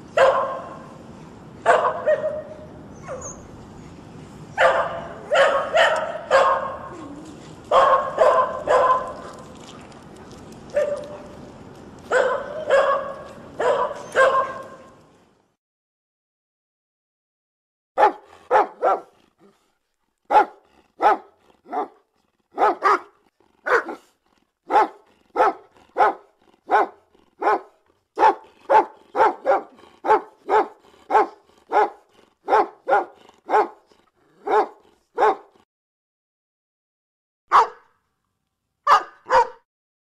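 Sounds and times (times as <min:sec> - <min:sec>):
dog barking: 0:00.2 - 0:00.8, 0:01.6 - 0:03.2, 0:04.6 - 0:06.9, 0:07.7 - 0:09.2, 0:10.8 - 0:11.2, 0:12.1 - 0:14.8, 0:18.0 - 0:19.1, 0:20.3 - 0:22.0, 0:22.6 - 0:24.1, 0:24.7 - 0:33.8, 0:34.4 - 0:35.5, 0:37.5 - 0:37.9, 0:38.8 - 0:39.6.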